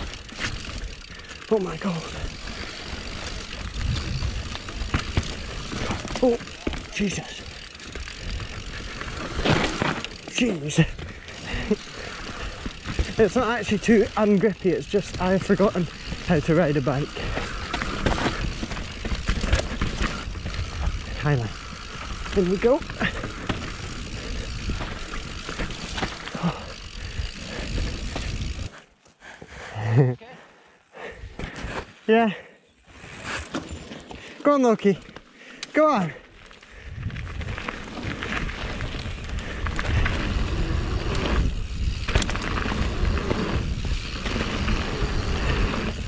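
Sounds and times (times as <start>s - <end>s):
bike tyres on dirt: 0.0s - 30.0s, 30.8s - 46.0s
bike knocks and rattles: 3.0s - 28.7s
wind rumble on microphone: 3.7s - 4.5s, 36.9s - 37.8s.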